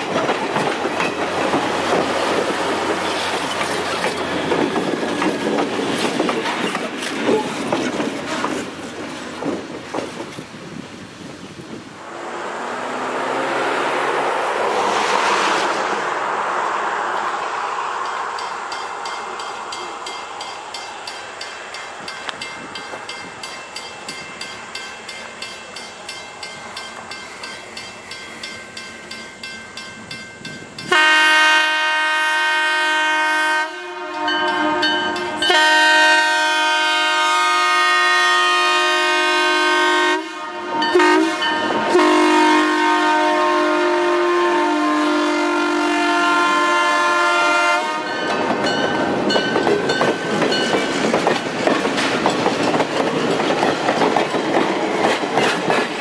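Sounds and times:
train wheel clicks: 0.0 - 10.4, 18.0 - 30.9, 48.2 - 56.0
locomotive air horn: 30.9 - 48.2.

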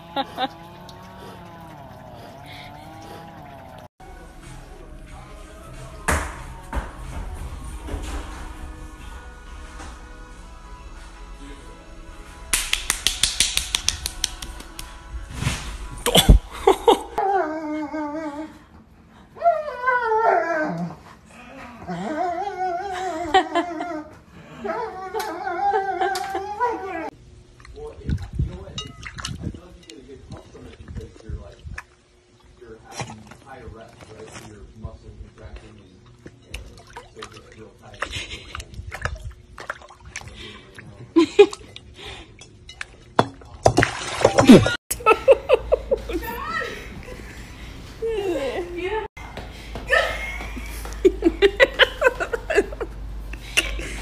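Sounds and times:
dog whining: 19.4 - 21.0
water sloshing and splashing: 27.5 - 29.6, 35.6 - 44.8.

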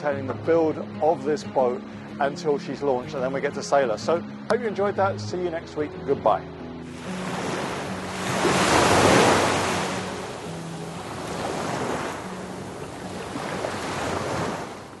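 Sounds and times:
music with low held notes: 0.0 - 11.5
surf-like rushing noise: 6.9 - 15.0.

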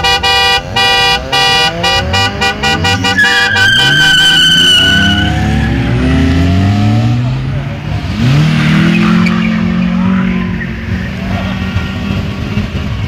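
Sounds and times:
car horn beeping: 0.0 - 5.9
car engines revving: 0.0 - 13.0
tyre squealing: 1.6 - 6.3.

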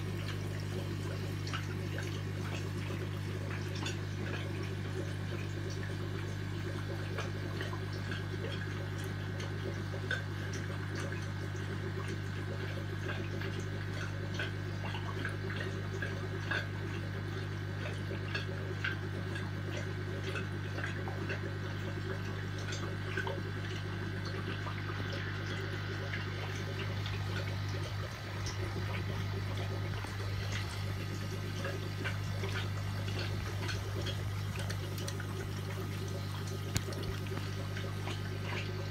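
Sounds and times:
aquarium water bubbling: 0.0 - 38.9
steady low hum: 0.0 - 38.9
small ticks and pops: 25.6 - 38.9.

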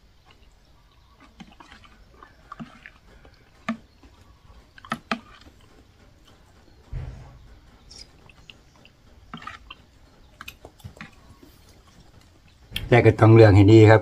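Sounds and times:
person chewing softly: 0.0 - 6.9, 7.8 - 12.8.

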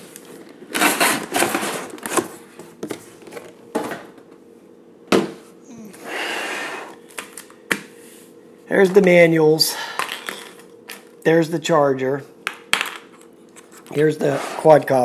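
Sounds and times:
cardboard packaging scraping and rustling: 0.5 - 3.5.

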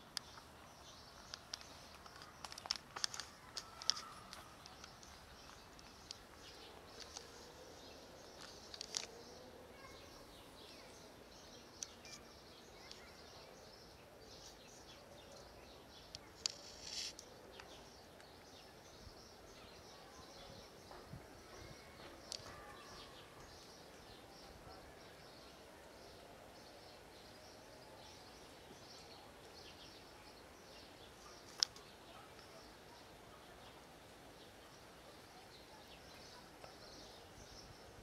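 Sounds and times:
high chirps and clicks: 1.2 - 7.4, 11.8 - 13.0.

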